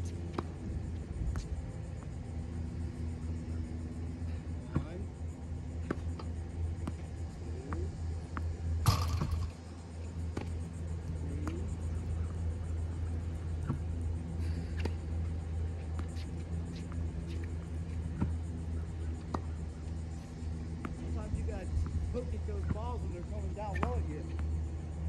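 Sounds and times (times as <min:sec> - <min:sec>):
ball machine humming: 0:00.2 - 0:15.6
sharp pops of balls launched: 0:08.8 - 0:09.6.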